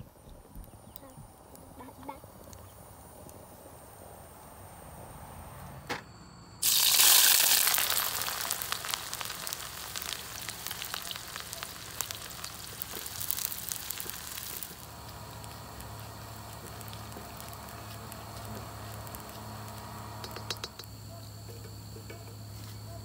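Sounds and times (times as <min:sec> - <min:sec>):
onion sizzling in hot oil: 0:06.6 - 0:21.1
small oil pops: 0:10.0 - 0:21.0.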